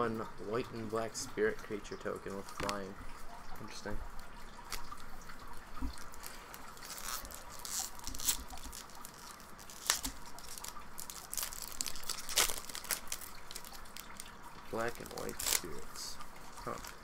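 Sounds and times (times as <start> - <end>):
foil wrapper crinkling and tearing: 6.0 - 17.0.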